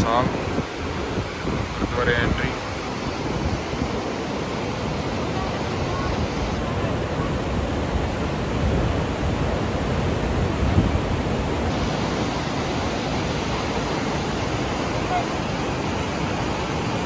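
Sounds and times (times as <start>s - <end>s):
fast mountain river rushing: 0.0s - 17.0s.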